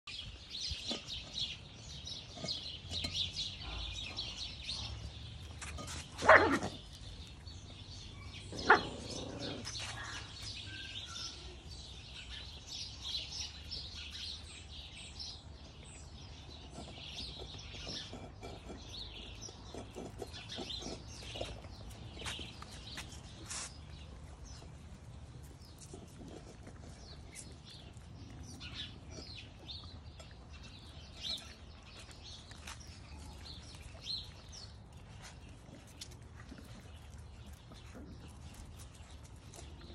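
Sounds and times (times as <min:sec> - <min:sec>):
birds chirping: 0:00.0 - 0:39.9
puppy barks: 0:06.2 - 0:06.8, 0:08.5 - 0:10.3.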